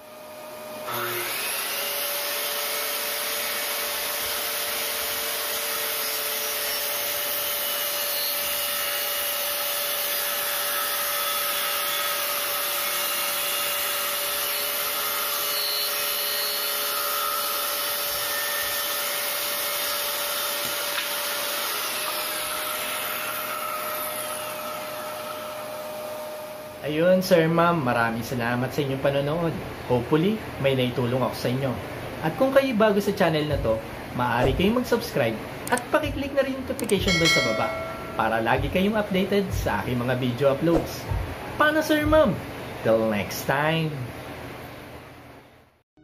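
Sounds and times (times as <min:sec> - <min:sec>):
vacuum running: 0:00.0 - 0:05.7
circular saw cutting wood: 0:00.0 - 0:26.8, 0:37.1 - 0:38.5.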